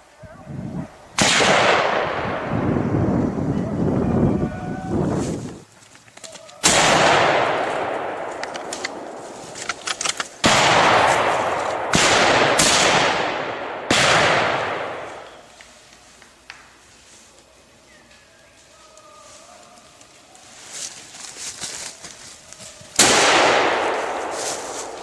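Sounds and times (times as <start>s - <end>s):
rifle shots with rolling echo: 1.2s - 2.8s, 6.6s - 15.4s, 23.0s - 25.0s.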